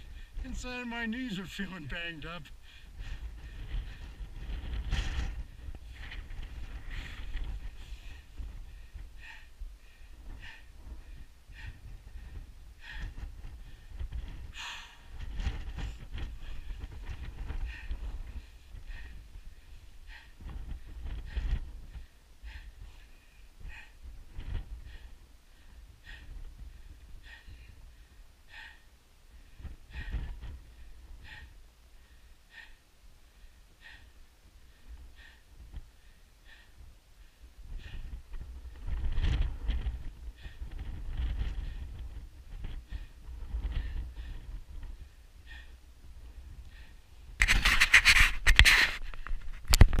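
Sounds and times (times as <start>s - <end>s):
person breathing hard: 2.5s - 47.3s
low rumble on microphone: 2.6s - 28.8s, 34.7s - 50.0s
hand scraping on rock: 47.4s - 49.8s.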